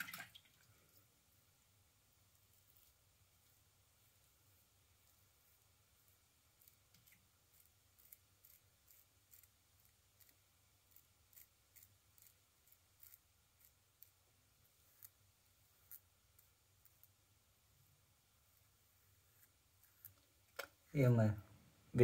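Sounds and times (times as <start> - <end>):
razor scraping stubble: 6.0 - 17.2, 19.0 - 20.2.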